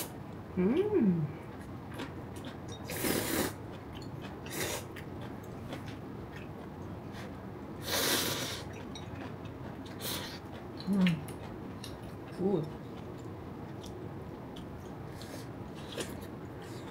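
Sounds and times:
eating noises: 1.6 - 16.9
person slurping noodles: 2.9 - 3.6, 4.5 - 4.8, 7.8 - 8.6.

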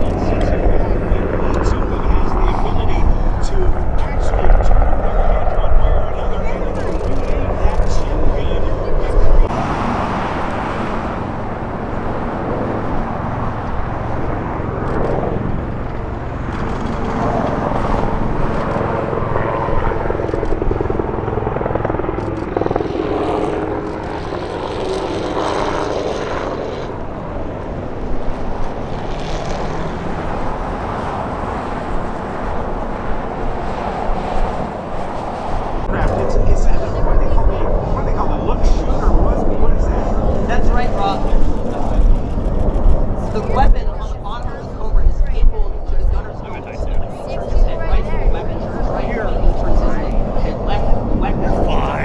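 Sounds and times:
helicopter flying overhead: 0.0 - 52.0.

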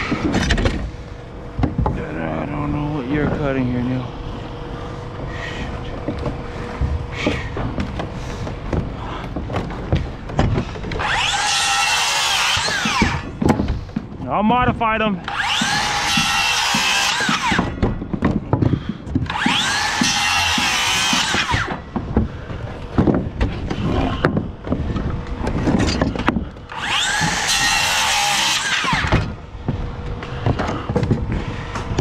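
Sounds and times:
knocks and clatter: 0.0 - 4.1, 5.1 - 32.0
circular saw cutting wood: 10.9 - 13.4, 15.2 - 17.8, 19.3 - 21.8, 26.7 - 29.4.

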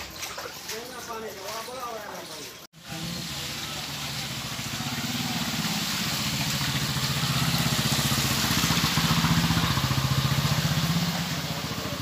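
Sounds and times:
motorcycle engine running: 2.9 - 12.0.

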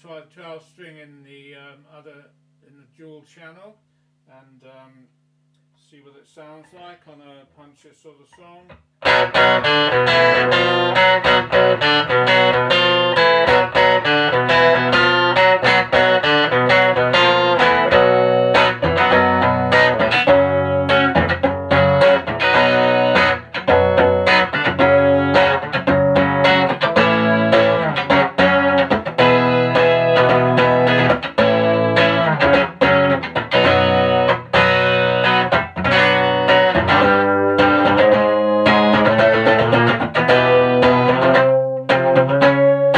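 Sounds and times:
twelve-string guitar strummed: 9.0 - 42.9.

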